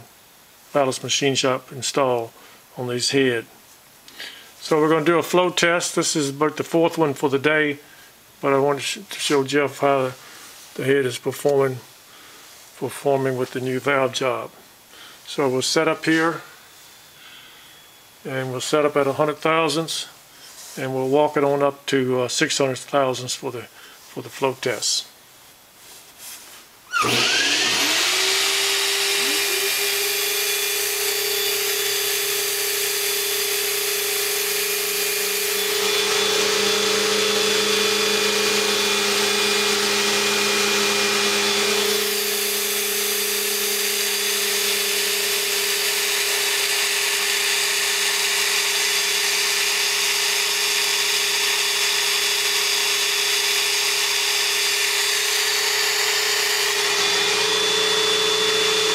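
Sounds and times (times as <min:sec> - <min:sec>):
flow bench motor running: 0:26.9 - 0:58.9.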